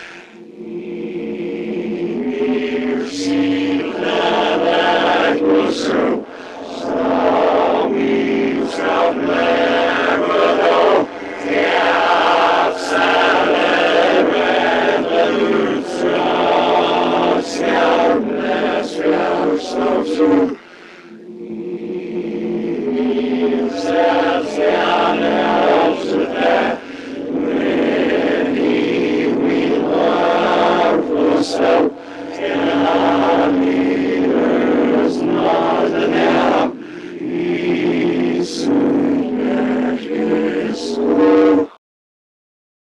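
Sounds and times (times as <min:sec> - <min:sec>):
choir chanting sustained notes: 0:00.0 - 0:41.8.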